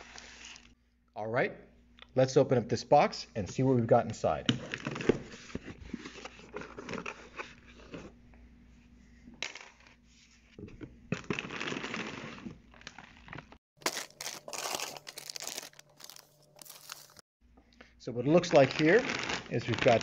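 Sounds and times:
plastic bags crinkling: 11.4s - 17.2s, 18.4s - 20.0s.

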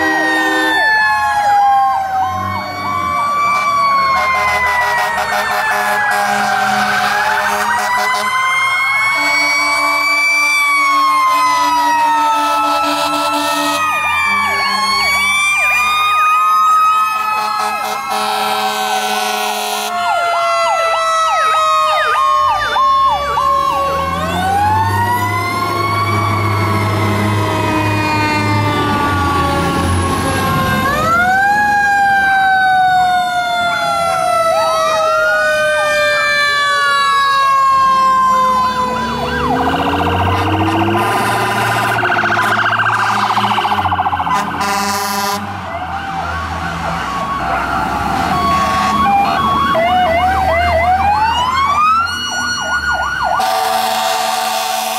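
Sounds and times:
diesel engines rumbling: 0.0s - 54.9s
fire truck sirens wailing: 0.0s - 54.9s
horn blasts: 3.6s - 8.3s, 9.1s - 11.8s, 12.4s - 13.8s, 17.7s - 20.0s, 40.3s - 45.5s, 48.5s - 49.4s, 53.4s - 54.9s.

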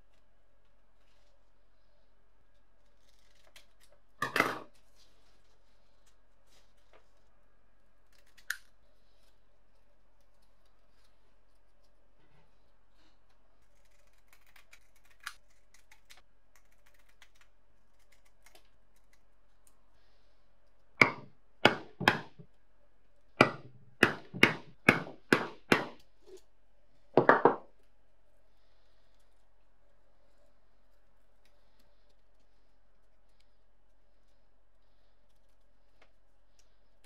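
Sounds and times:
hammer striking steel punch: 21.0s - 22.4s, 23.4s - 26.0s.

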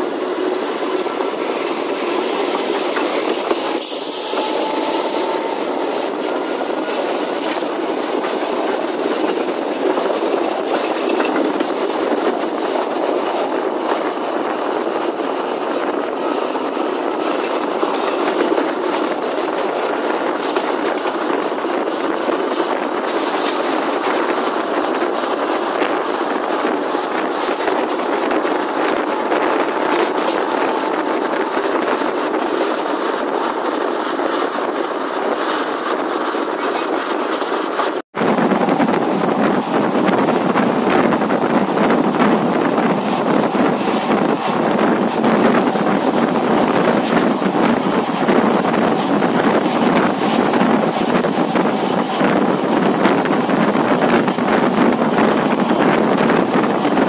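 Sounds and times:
sharp track clicks: 0.0s - 36.0s
train wheels rumbling on rails: 0.0s - 57.0s.

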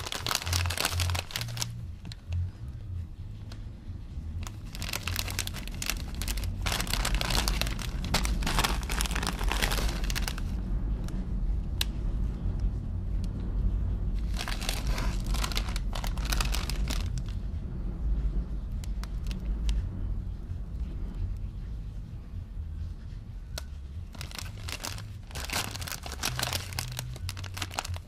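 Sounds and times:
chip bags crinkling: 0.0s - 1.8s, 4.4s - 10.6s, 14.2s - 17.3s, 24.1s - 28.0s
steady low rumble: 0.0s - 28.0s.

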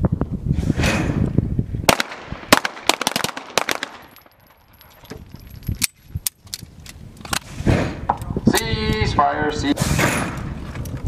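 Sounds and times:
pistol shots: 1.9s - 4.2s.

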